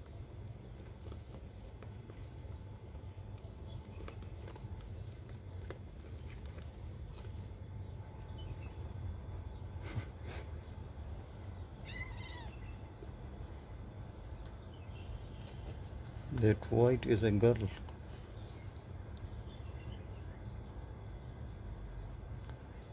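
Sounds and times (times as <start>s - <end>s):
kittens scuffling: 0.0s - 20.0s, 21.0s - 22.9s
kitten meow: 11.8s - 12.8s.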